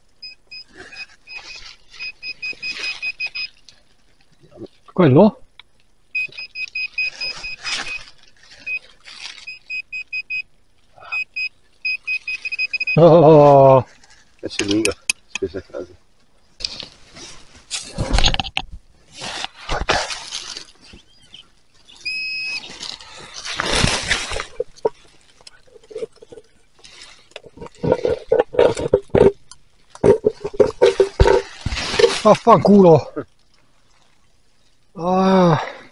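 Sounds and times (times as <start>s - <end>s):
rustling: 0.0s - 5.0s, 5.7s - 34.9s
metal detector short beeps: 0.2s - 3.6s, 6.2s - 8.0s, 9.4s - 10.5s, 11.1s - 13.0s, 22.0s - 22.7s.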